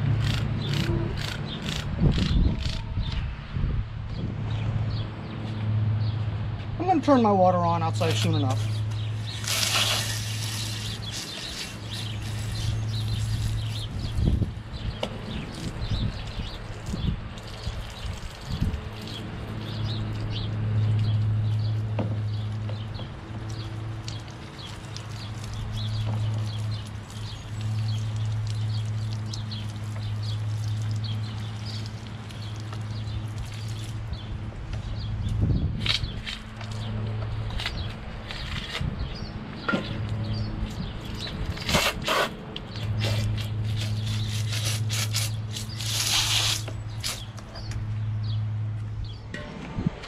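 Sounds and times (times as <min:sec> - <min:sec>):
water spraying from a hose: 0:07.8 - 0:38.5, 0:40.2 - 0:47.5.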